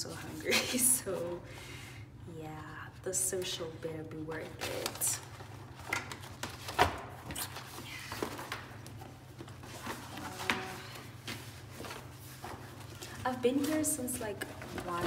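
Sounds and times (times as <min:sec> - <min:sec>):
low room hum: 0:00.0 - 0:15.0
knocks and rustles of handling: 0:04.3 - 0:15.0.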